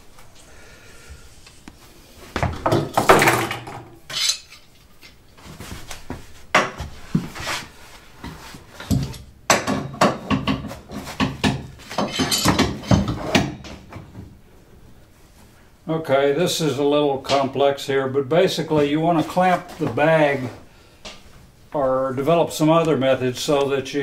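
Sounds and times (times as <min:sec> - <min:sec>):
metal clamps clanking: 0:04.1 - 0:04.7, 0:11.9 - 0:13.4.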